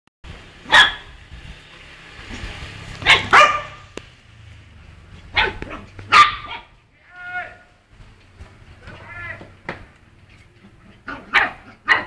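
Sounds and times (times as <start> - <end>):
small dog barking: 0.7 - 1.1, 3.0 - 3.9, 5.3 - 6.8, 11.0 - 12.0.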